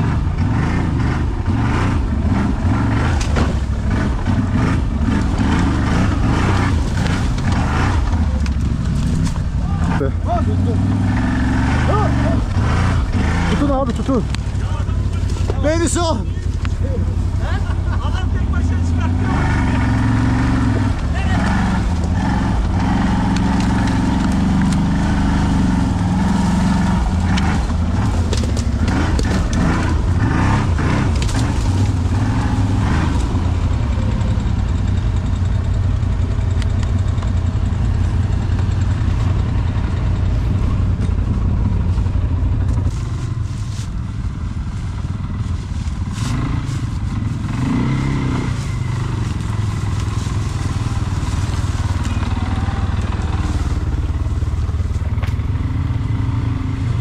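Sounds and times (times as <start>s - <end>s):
atv engine running: 0.0s - 57.0s
cracks and knocks: 27.3s - 29.9s.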